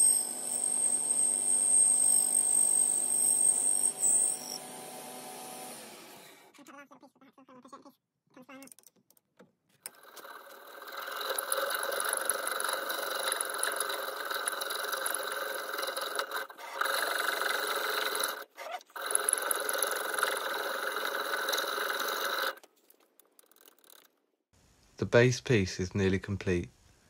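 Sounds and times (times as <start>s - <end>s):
hacksaw scraping screech on brass: 0.0s - 4.7s, 10.0s - 22.6s.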